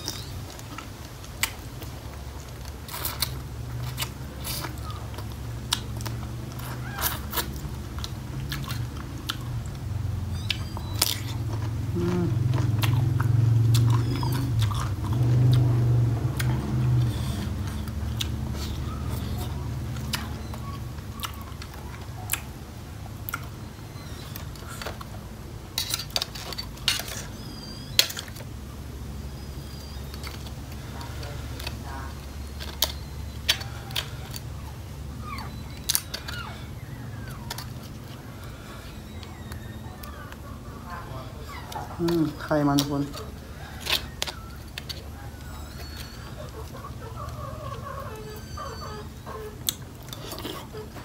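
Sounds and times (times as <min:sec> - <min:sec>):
faint wavering calls: 0:26.4 - 0:51.0
short high squeaks: 0:47.7 - 0:49.6.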